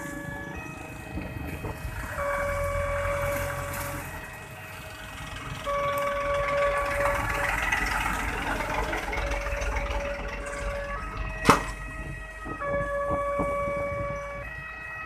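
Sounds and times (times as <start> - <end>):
two-tone level crossing siren: 0.0 - 15.0
motorcycles running: 2.8 - 14.4.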